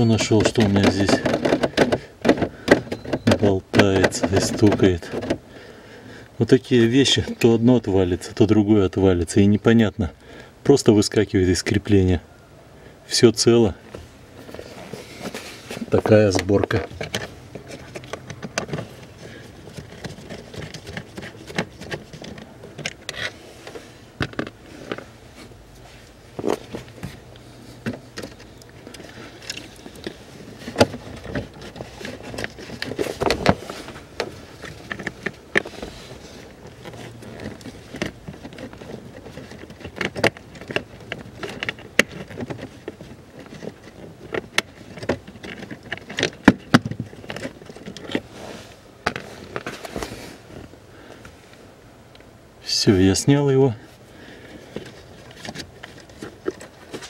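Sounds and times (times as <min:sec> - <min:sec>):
plastic parts knocking: 0:00.0 - 0:05.4, 0:15.9 - 0:23.2, 0:24.2 - 0:25.0, 0:27.8 - 0:35.9, 0:36.6 - 0:48.2.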